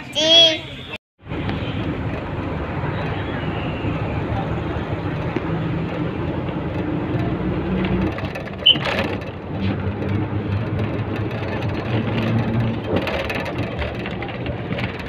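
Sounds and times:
bus engine running: 0.0s - 15.0s
road and rattle noise: 0.0s - 15.0s.

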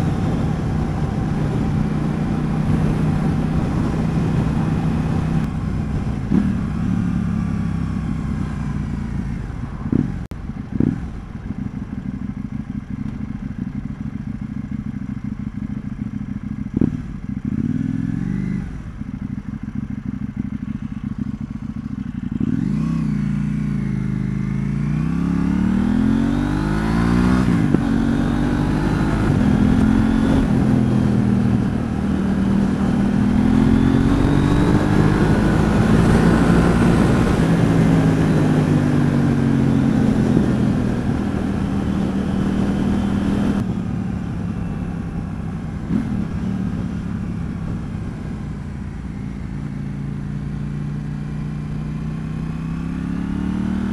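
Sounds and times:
motorcycle engine revving: 0.0s - 53.9s
wind rush: 26.7s - 43.9s.

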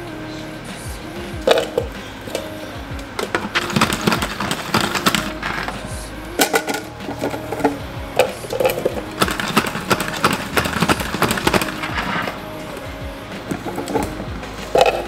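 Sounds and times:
soft background music: 0.0s - 15.0s.

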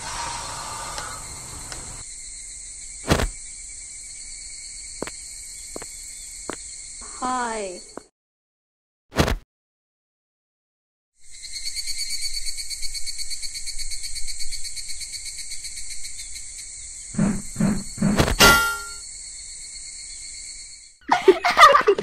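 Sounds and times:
insects buzzing: 0.0s - 8.1s, 11.2s - 21.2s
metallic clang: 18.3s - 19.0s.

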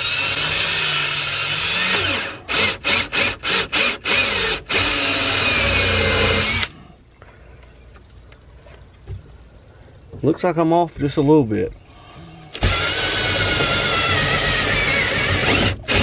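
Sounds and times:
cordless drill cutting plastic: 0.0s - 6.8s, 12.5s - 16.0s.

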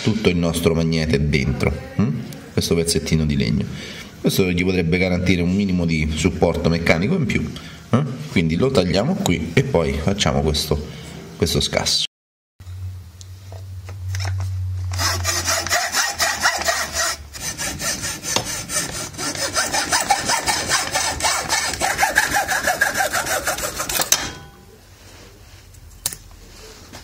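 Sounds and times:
hacksaw cutting wood: 15.0s - 24.3s.

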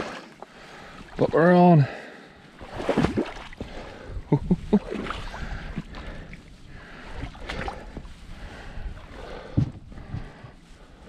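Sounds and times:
knocks and creaks: 9.5s - 10.4s.

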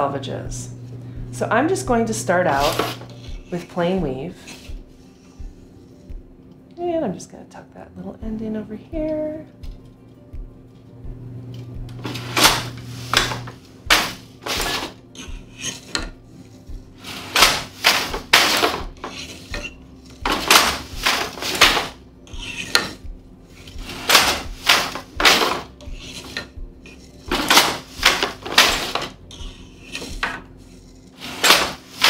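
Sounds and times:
wooden loom knocks and clacks: 31.4s - 32.0s.

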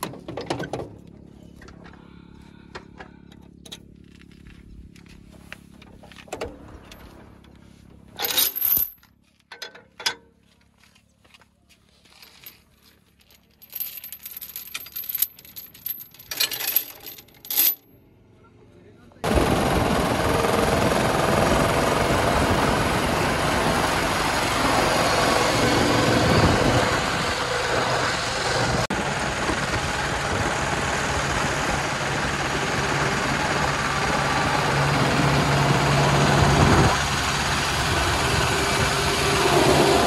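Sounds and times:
heavy chain clinking and rattling: 8.2s - 9.6s, 12.1s - 17.9s
tractor engine idling: 19.3s - 40.0s.

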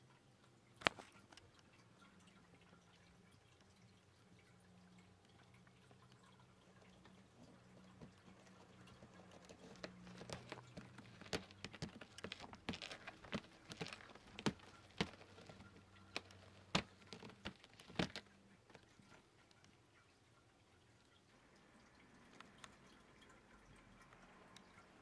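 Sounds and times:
cat scratching a fibre mat: 8.0s - 19.2s.

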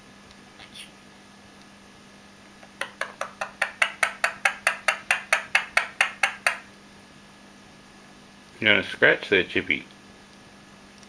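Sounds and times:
parakeet clicking: 2.6s - 6.7s.

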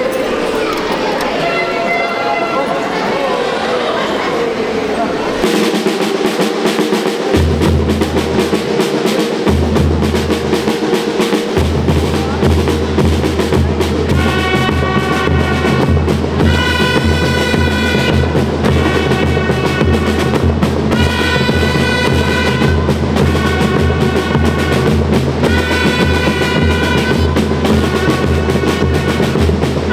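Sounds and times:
snare drum rolls: 5.4s - 29.9s
bass drum beats: 7.0s - 29.9s.

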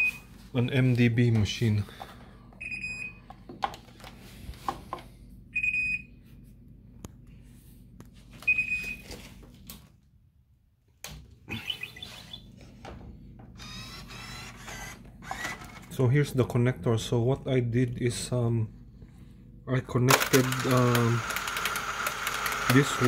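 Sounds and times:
low steady hum: 0.0s - 20.4s.

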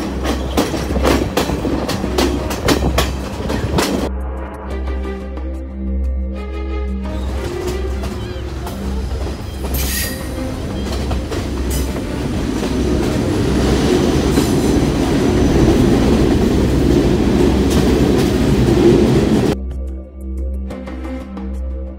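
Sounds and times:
train wheels and carriage noise: 0.0s - 4.1s, 7.1s - 19.6s.

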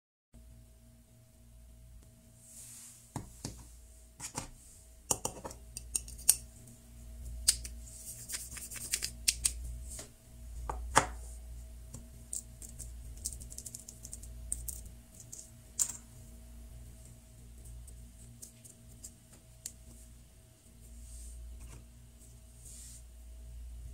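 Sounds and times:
dough rubbing and squeezing: 7.1s - 10.2s, 16.8s - 23.3s.

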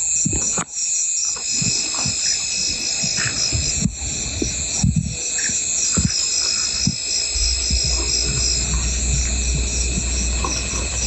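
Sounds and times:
night insects trilling: 0.0s - 11.0s
low steady drone: 1.4s - 11.0s
emu drumming thuds: 5.9s - 11.0s.

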